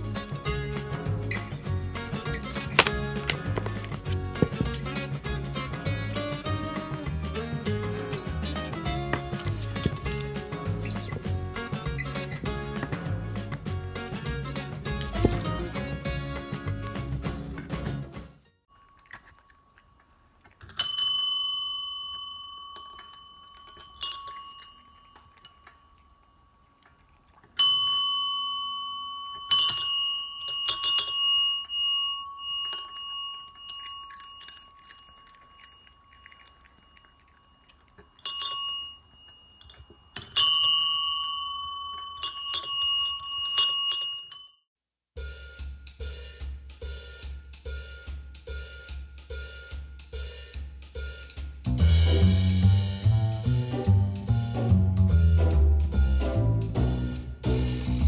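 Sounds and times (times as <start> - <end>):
desk bells dinging: 20.6 - 26.7, 27.6 - 44.6
music with a steady beat: 45.2 - 58.0.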